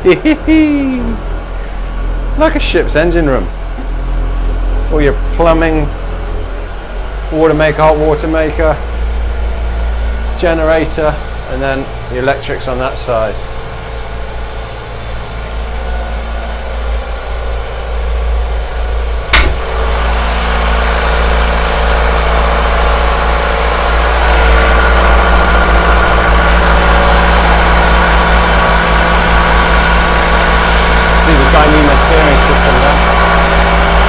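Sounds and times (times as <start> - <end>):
diesel engine running: 0.0 - 34.0
door click: 19.4 - 19.6.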